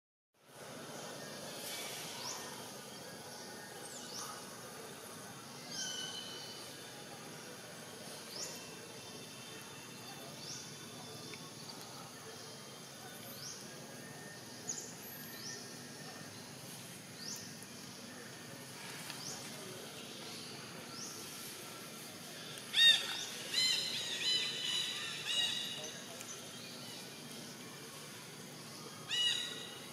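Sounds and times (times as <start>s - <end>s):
faint steady hiss: 0.4s - 29.9s
loud shrill bird call: 22.7s - 25.8s, 29.1s - 29.8s.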